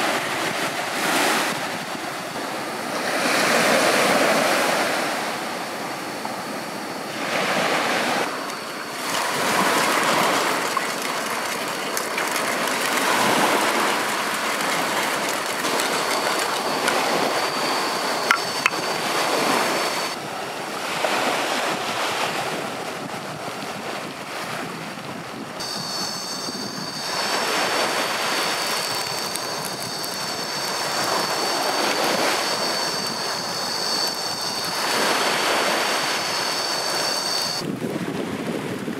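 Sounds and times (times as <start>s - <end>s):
sea waves breaking on shore: 0.0s - 38.9s
high-pitched whine: 1.4s - 20.2s, 25.6s - 37.7s.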